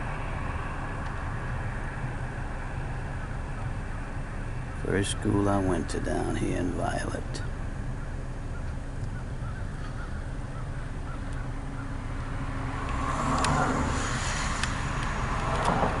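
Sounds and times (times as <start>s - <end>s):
car engine idling: 0.0s - 16.0s
rustling hiss: 12.2s - 16.0s
sharp clicks: 12.8s - 13.6s, 14.5s - 15.9s.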